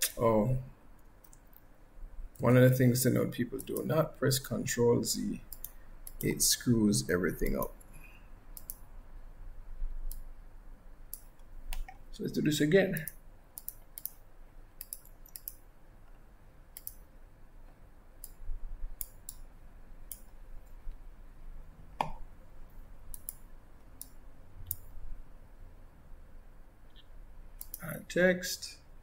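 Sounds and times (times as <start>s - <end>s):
computer mouse clicking: 1.0s - 1.7s, 3.6s - 4.0s, 5.5s - 6.3s, 8.5s - 8.8s, 10.0s - 10.3s, 11.1s - 12.0s, 12.9s - 14.2s, 14.8s - 16.2s, 16.8s - 17.1s, 18.2s - 18.4s, 19.0s - 21.0s, 23.1s - 24.9s, 26.9s - 27.9s.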